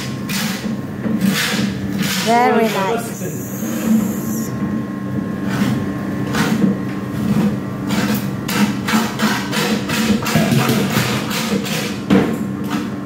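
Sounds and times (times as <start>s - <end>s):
steady low hum: 1.8s - 5.3s.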